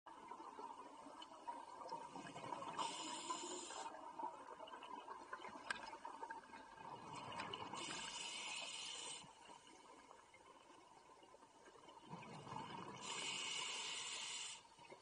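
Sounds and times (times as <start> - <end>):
faint steady hum: 0.1 - 15.0.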